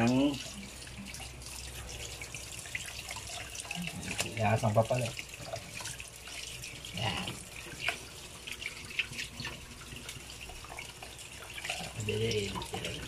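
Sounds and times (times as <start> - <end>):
splashing as fish rinsed: 0.0 - 13.0
tap water running into bowl: 0.0 - 13.0.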